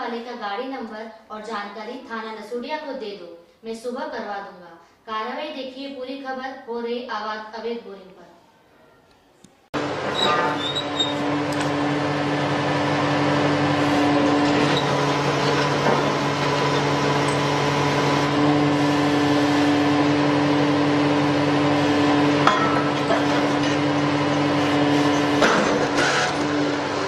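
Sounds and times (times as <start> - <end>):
drilling rig droning: 9.8 - 27.0.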